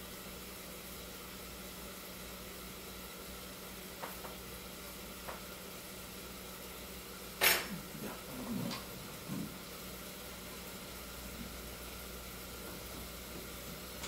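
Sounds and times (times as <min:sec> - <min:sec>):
steady hum: 0:00.0 - 0:14.0.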